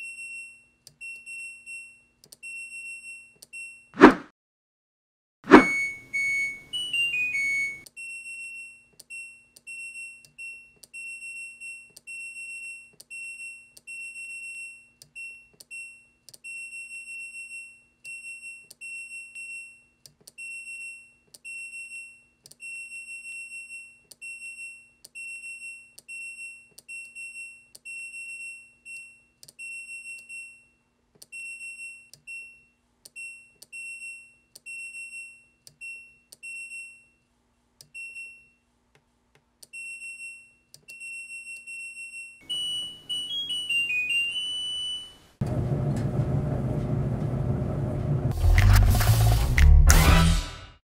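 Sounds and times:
washing machine beeps: 0:05.5 - 0:19.8, 0:38.0 - 0:38.5, 0:39.7 - 0:45.6.

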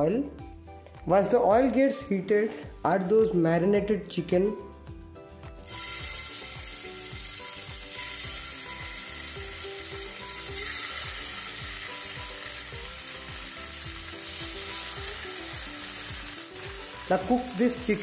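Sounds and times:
chicken sizzling in oil: 0:05.6 - 0:18.0.

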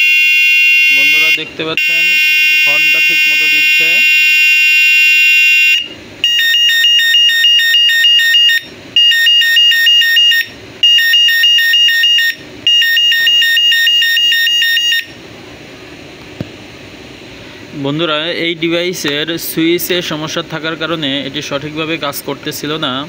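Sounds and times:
electronic bicycle horn beeping: 0:00.0 - 0:15.2.

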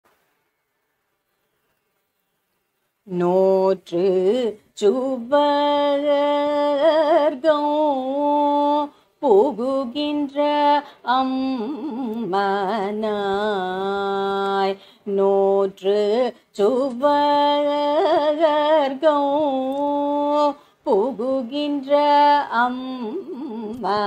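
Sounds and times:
person singing unaccompanied: 0:03.0 - 0:24.0
singer breathing: 0:14.8 - 0:15.1.

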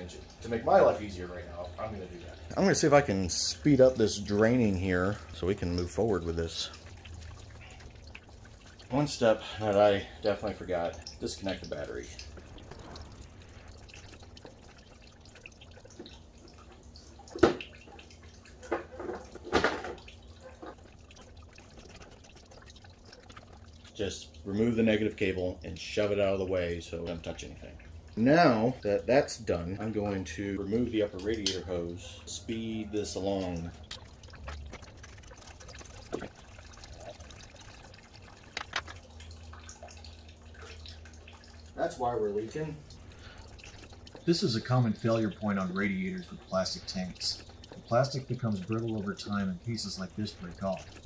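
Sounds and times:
liquid trickling and dripping: 0:00.0 - 0:51.0
sharp clicks and knocks: 0:38.5 - 0:39.0.

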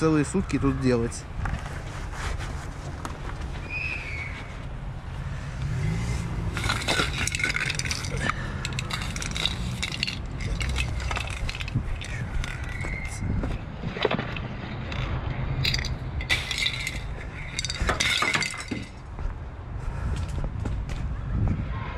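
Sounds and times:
objects clinking and knocking: 0:06.4 - 0:19.0.

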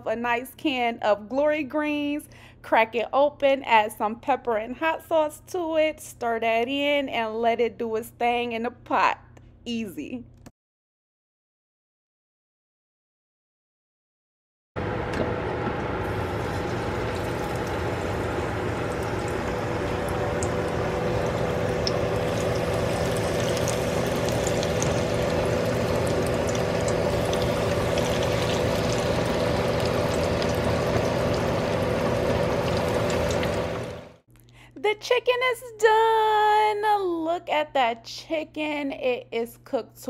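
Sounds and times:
steady hum: 0:14.8 - 0:34.3
chicken wings deep-frying: 0:15.8 - 0:34.2.

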